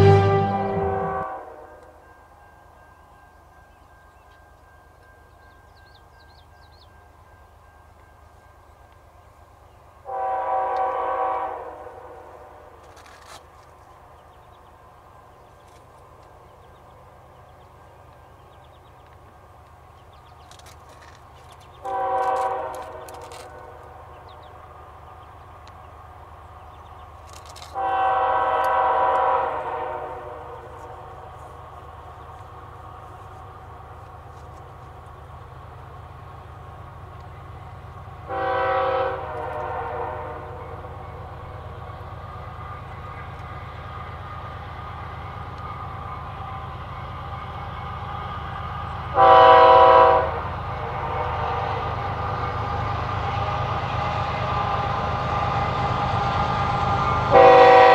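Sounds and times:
distant locomotive air horn: 0.0 - 2.1, 10.0 - 13.4, 21.8 - 24.0, 27.5 - 31.0, 38.2 - 40.9, 49.1 - 52.0, 56.8 - 57.9.

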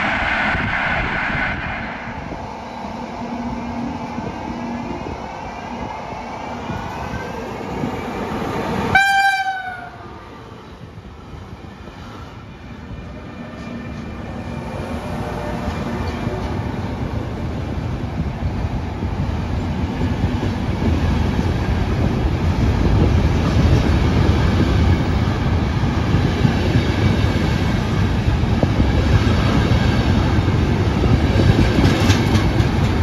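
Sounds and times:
train rail noise: 0.0 - 33.0
train horn blast: 8.9 - 10.0.

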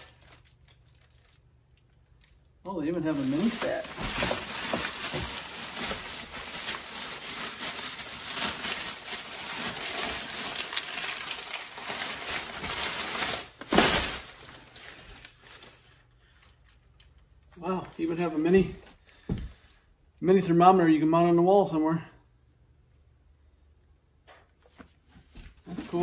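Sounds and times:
plastic bags crinkling: 0.0 - 19.7, 25.4 - 26.0.

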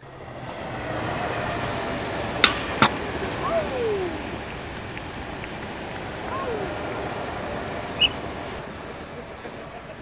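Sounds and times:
scooter wheels rolling on asphalt: 0.0 - 10.0
scooter clacking on rail: 2.0 - 3.3, 4.2 - 6.3.

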